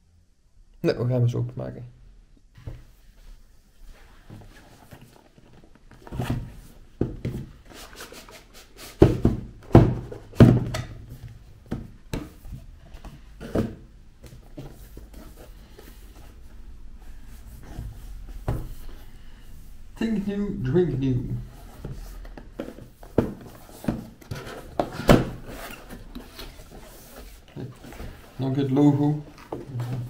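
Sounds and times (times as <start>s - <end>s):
cardboard rustling: 3.8s - 19.1s, 21.3s - 30.0s
cardboard box knocks and thumps: 6.0s - 7.6s, 9.0s - 11.0s, 21.8s - 26.8s.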